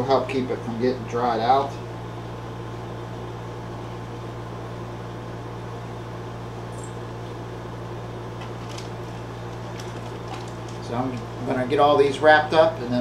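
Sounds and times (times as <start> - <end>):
low kitchen room hum: 0.0 - 13.0
hands rustling plastic: 8.4 - 11.3.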